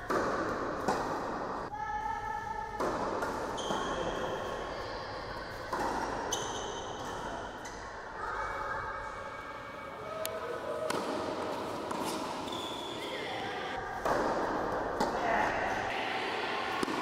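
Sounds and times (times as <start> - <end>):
racket striking ball: 0.0 - 1.7, 2.8 - 4.3, 10.9 - 12.5, 14.0 - 15.8, 16.7 - 17.0
shoe squeaks on court: 12.0 - 13.2.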